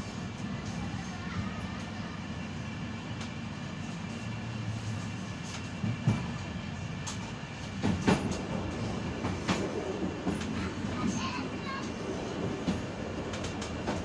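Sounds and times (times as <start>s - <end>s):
train rolling rumble: 0.0s - 14.0s.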